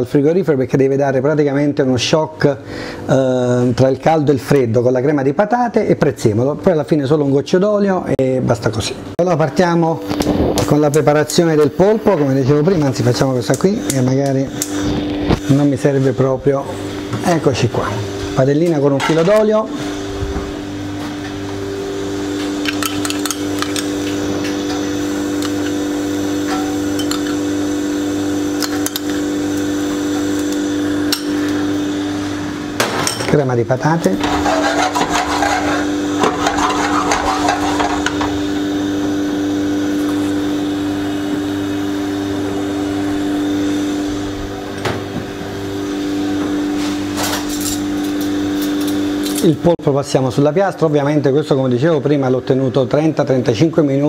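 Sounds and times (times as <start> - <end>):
kitchen equipment hum: 0.1 - 54.0
spoon and pan clattering: 26.5 - 27.4.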